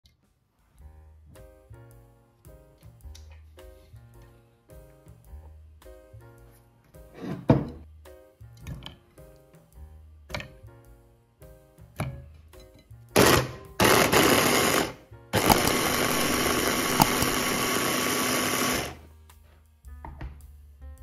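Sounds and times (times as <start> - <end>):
light background music: 0.1 - 21.0
electric food chopper motor: 13.2 - 19.0.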